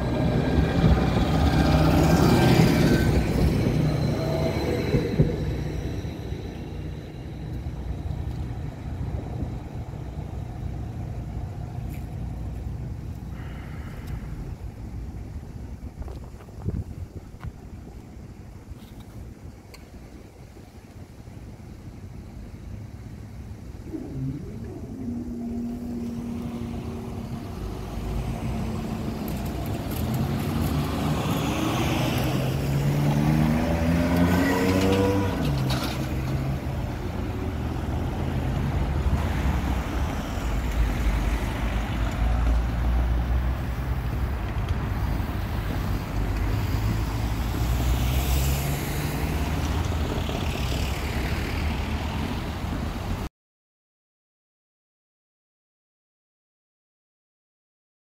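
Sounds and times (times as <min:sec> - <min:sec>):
car engines pulling away: 0:00.0 - 0:15.3, 0:23.8 - 0:53.3.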